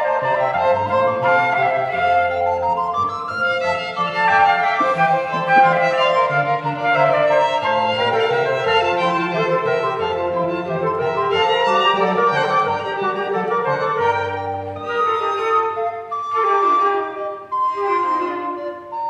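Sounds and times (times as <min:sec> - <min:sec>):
flute melody: 0:00.0 - 0:19.0
violin melody: 0:00.0 - 0:19.0.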